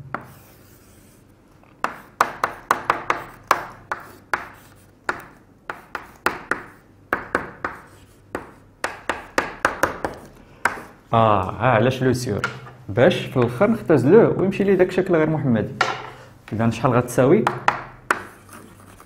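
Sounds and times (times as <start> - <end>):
chalk tapping and scraping on blackboard: 0.0 - 11.0, 17.4 - 19.0.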